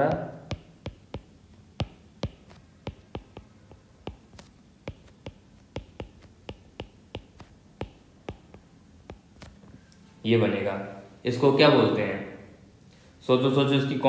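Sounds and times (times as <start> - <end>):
stylus tapping on drawing tablet: 0.0 - 9.6.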